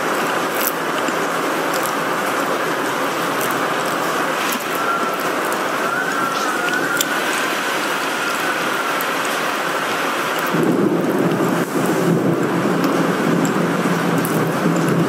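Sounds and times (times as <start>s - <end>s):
heavy rain: 0.0s - 15.0s
wind hiss: 0.0s - 15.0s
low thunder rumble: 10.5s - 15.0s.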